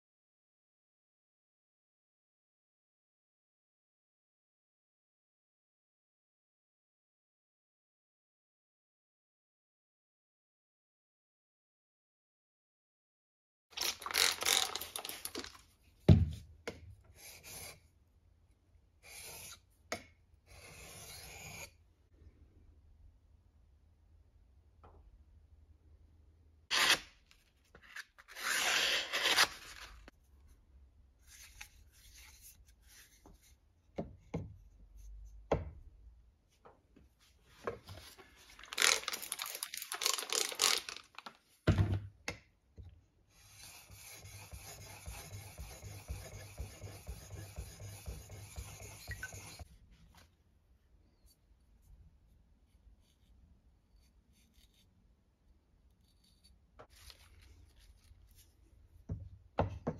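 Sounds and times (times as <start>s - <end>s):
paper crinkling: 13.8s - 15.7s, 26.7s - 30.1s, 38.0s - 41.4s, 56.9s - 58.5s
scraping against a knife: 20.5s - 21.8s, 43.4s - 49.7s.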